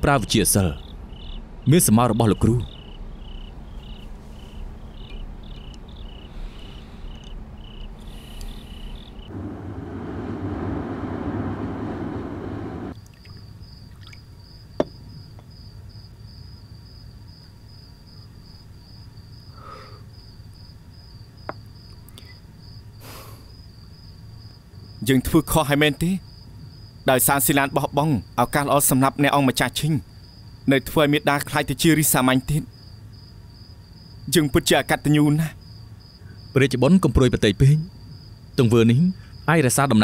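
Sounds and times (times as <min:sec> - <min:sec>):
crickets chirping: 0:00.0 - 0:40.0
rushing noise: 0:08.1 - 0:13.0.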